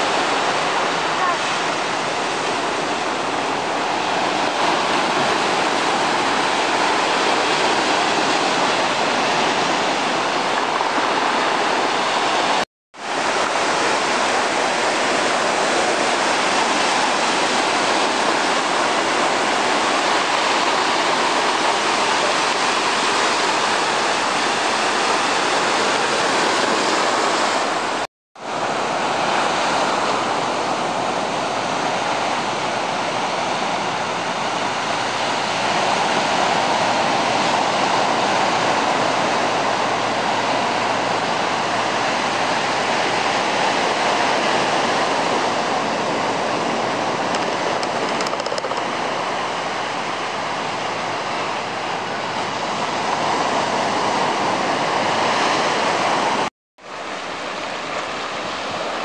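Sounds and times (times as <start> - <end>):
waves breaking on pebble beach: 0.0 - 56.5.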